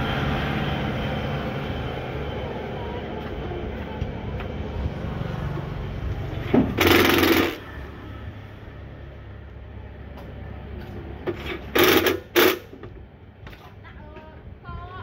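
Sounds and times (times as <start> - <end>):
steady background noise: 0.0 - 15.0
impact driver burst: 6.6 - 7.7, 11.6 - 12.8.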